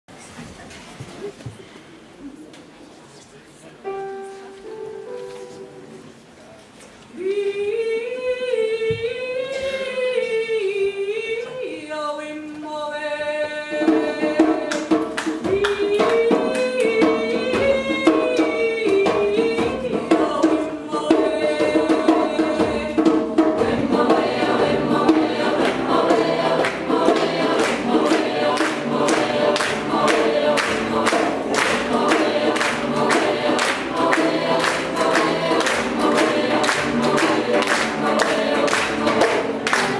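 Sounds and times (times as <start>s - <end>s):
choir singing a cappella: 7.2s - 39.9s
steady percussive beat: 13.8s - 39.9s.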